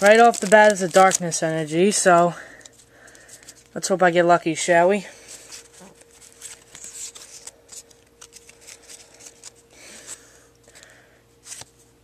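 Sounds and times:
cards clicking and rustling: 0:00.0 - 0:03.7, 0:05.3 - 0:11.8.

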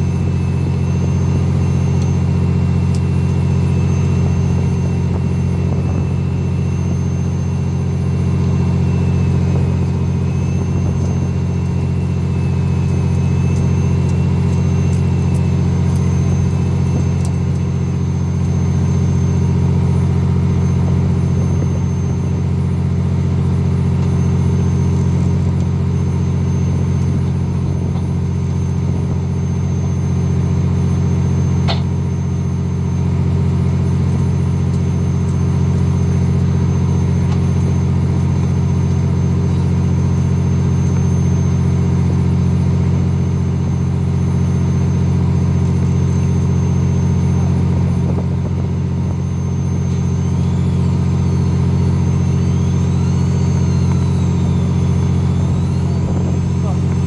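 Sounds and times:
boat engine humming: 0:00.0 - 0:57.0
faint high whine: 0:00.0 - 0:57.0.

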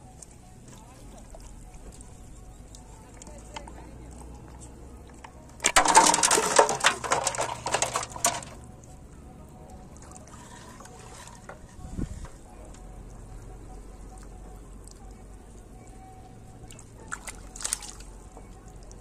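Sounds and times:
water and fish splashing into metal basin: 0:05.6 - 0:08.6, 0:16.8 - 0:18.1.

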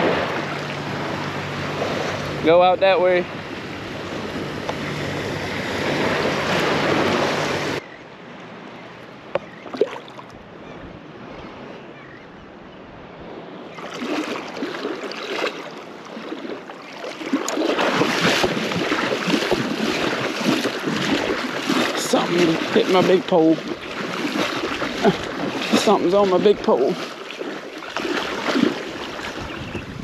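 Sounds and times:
surf sloshing and splashing: 0:00.0 - 0:07.8, 0:09.4 - 0:10.4, 0:13.2 - 0:30.0
wind on microphone: 0:00.0 - 0:07.8, 0:17.4 - 0:27.0, 0:27.9 - 0:30.0.

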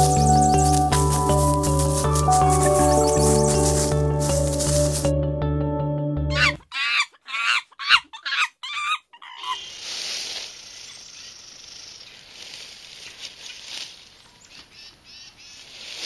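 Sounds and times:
background music: 0:00.0 - 0:06.6
wavering bird-like calls: 0:06.3 - 0:09.8.

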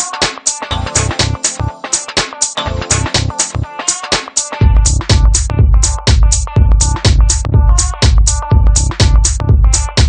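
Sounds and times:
deep bass notes: 0:00.7 - 0:01.7, 0:02.7 - 0:03.7, 0:04.6 - 0:10.0.

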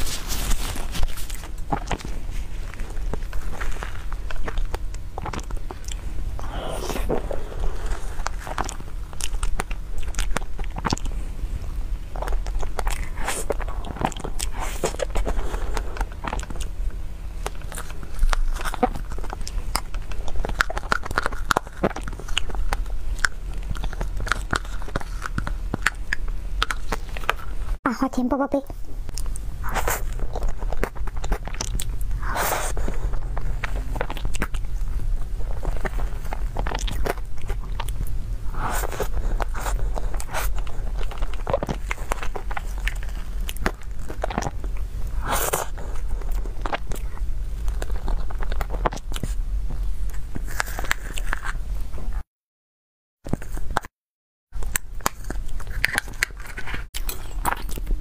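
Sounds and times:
steady low hum: 0:00.0 - 0:52.2
wet smacking and chewing: 0:00.9 - 0:27.6, 0:29.1 - 0:51.6, 0:54.6 - 0:58.0.

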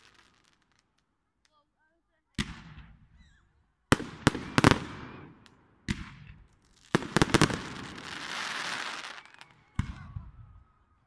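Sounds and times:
firework crackling: 0:00.0 - 0:01.7, 0:02.4 - 0:10.0
firework bangs: 0:02.4 - 0:10.3.

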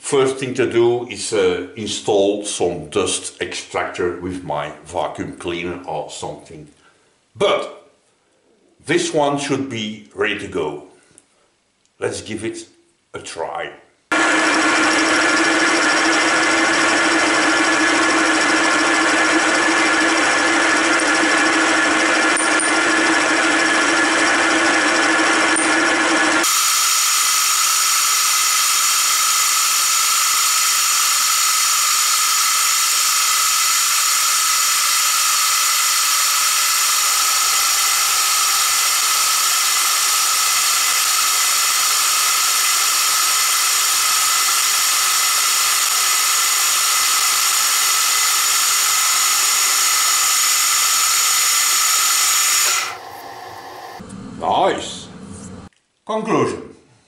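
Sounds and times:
milling machine cutting metal: 0:14.1 - 0:54.0.

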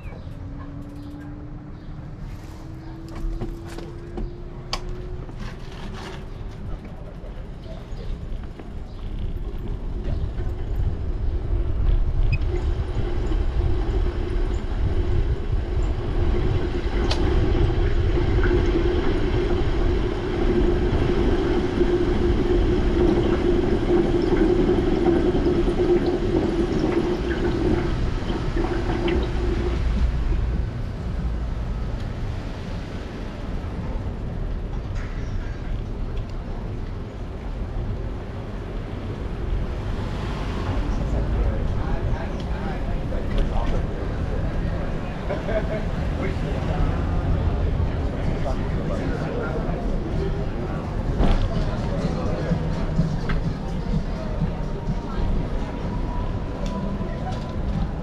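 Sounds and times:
bicycle tyre rumble on pavement: 0:02.2 - 0:34.6.

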